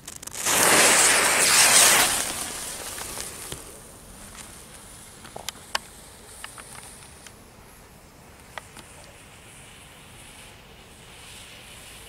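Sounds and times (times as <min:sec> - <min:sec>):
firecracker fuse hissing: 0:00.0 - 0:12.0
light ticks: 0:05.2 - 0:07.4.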